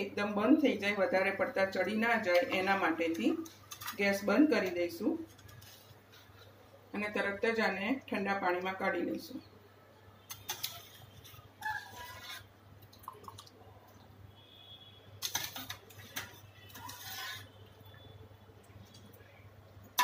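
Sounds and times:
spoon scraping in steel pot: 10.3s - 12.6s, 15.2s - 17.8s
water splashing and dripping: 12.8s - 14.1s.

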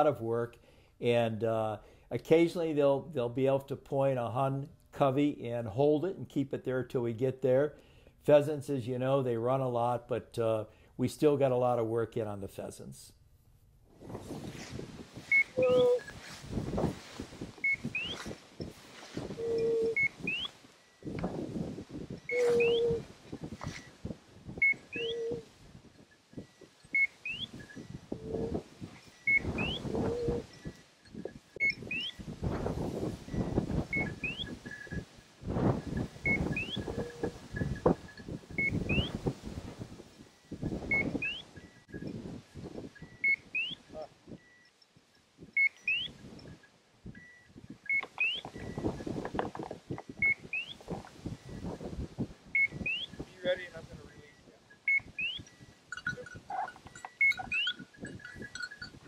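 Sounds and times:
walking through dry grass: 13.9s - 26.8s
boots swishing through dry grass: 14.0s - 19.4s
short lower tones: 15.3s - 16.2s, 22.2s - 23.1s
electronic collar beeps: 15.3s - 16.4s, 17.0s - 21.3s, 22.1s - 24.0s, 24.6s - 25.4s, 26.0s - 32.3s, 33.2s - 35.1s, 35.8s - 39.3s, 40.2s - 42.2s, 42.9s - 44.8s, 45.5s - 49.2s, 49.9s - 51.8s, 52.5s - 59.0s.

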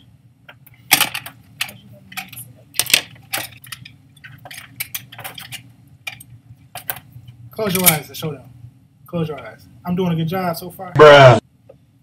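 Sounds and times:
makeup items clicking and clattering: 0.8s - 7.1s.

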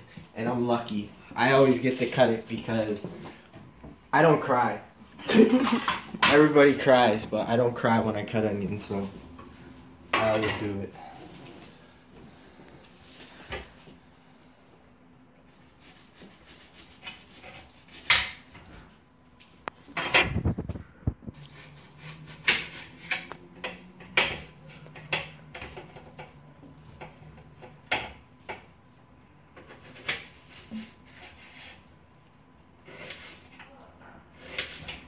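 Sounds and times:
dishes clinking and knocking: 5.3s - 6.5s.

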